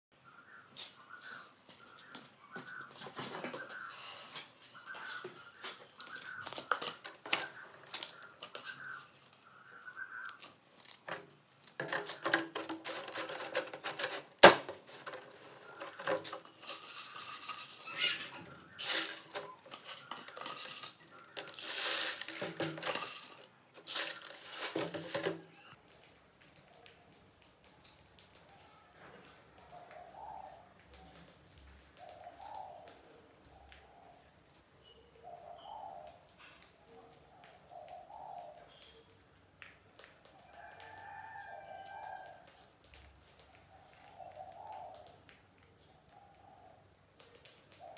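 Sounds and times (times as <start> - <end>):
plastic jar and lid clattering: 10.9 - 25.5.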